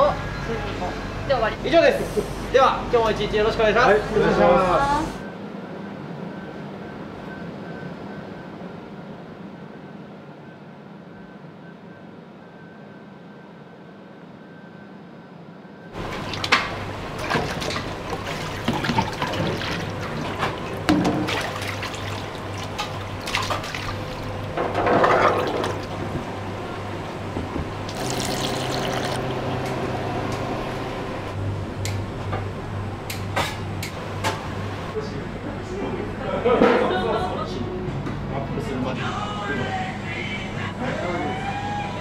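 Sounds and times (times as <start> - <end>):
steady low hum: 15.6 - 42.0
water splashing in metal sink: 16.0 - 26.0, 27.9 - 29.7.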